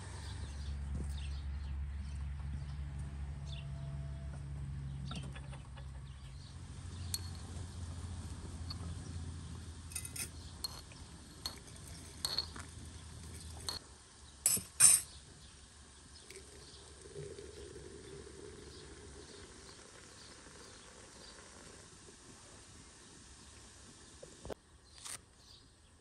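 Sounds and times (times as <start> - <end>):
sharp metallic tap clinks: 7.1 - 7.5
spoon clinking on pot and glass: 7.1 - 7.6, 9.9 - 13.8, 14.5 - 15.1
spoon scooping loose tea: 9.9 - 13.8.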